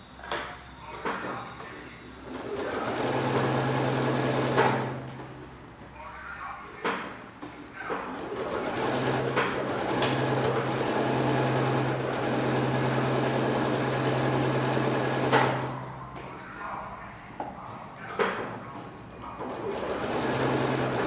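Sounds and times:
sewing machine stitching: 2.3 - 5.0, 8.1 - 15.7, 19.4 - 21.0.

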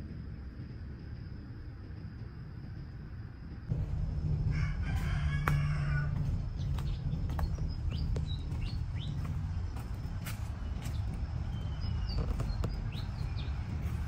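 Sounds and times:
steady low rumble: 0.0 - 14.0
bird calls and chirps: 6.5 - 14.0.

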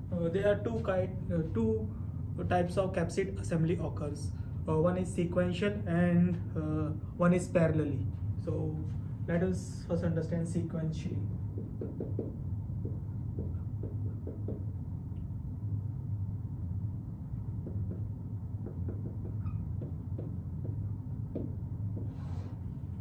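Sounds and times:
low room hum: 0.0 - 23.0
marker scratching on whiteboard: 11.5 - 14.7, 17.5 - 22.6.

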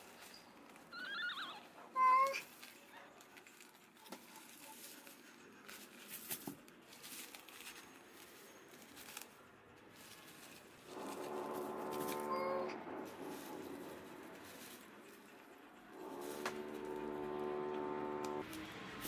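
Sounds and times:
cloth and paper rustling: 2.0 - 15.3.

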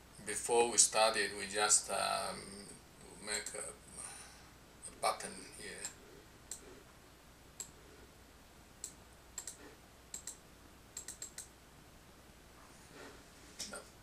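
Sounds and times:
faint steady hum: 0.0 - 14.0
mouse buttons clicking: 7.6 - 7.8, 8.8 - 10.4, 11.0 - 11.5.

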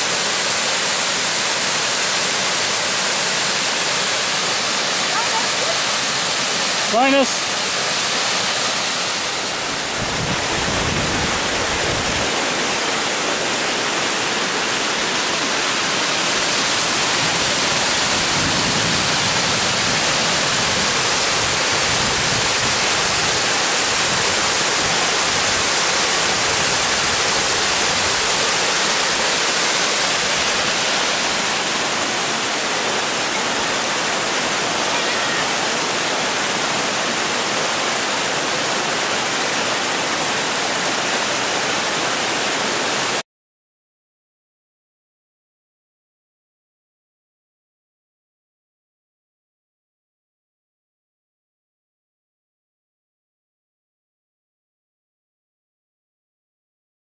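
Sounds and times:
waterfall rushing: 0.0 - 43.2.

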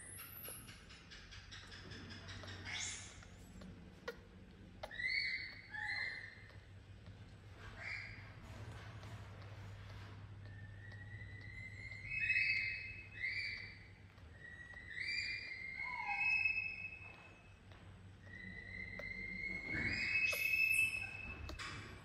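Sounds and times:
baby monkey crying: 2.0 - 6.8, 10.4 - 17.2, 18.2 - 21.6.

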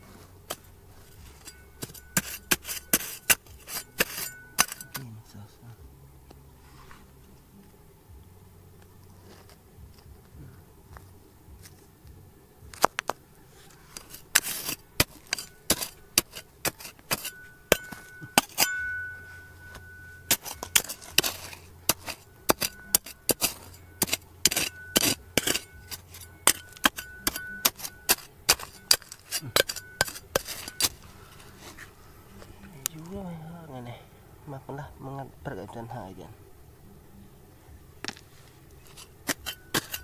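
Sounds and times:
metal tool hitting rock: 0.4 - 5.2, 14.0 - 31.9, 38.0 - 40.0
steady high tone: 17.2 - 35.3.

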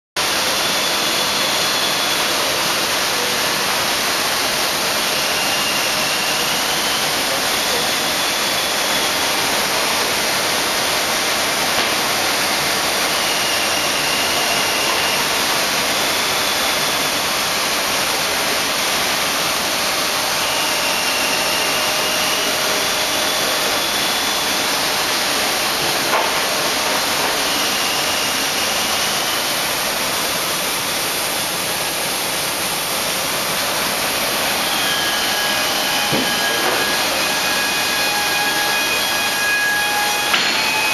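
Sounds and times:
faint high whines: 0.2 - 40.9
woodworking machinery rushing: 0.2 - 40.9.

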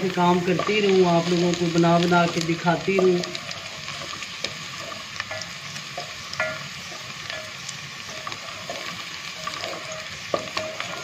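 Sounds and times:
onions sizzling in a pot: 0.0 - 11.0
wooden spoon scraping a pot: 2.9 - 11.0.

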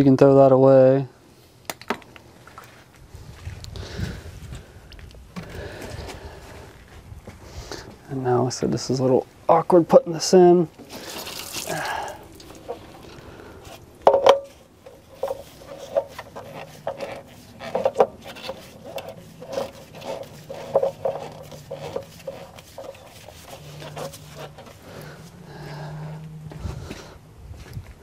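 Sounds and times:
rustle: 10.6 - 28.0
fuel filter knocking and rattling: 14.0 - 24.8.

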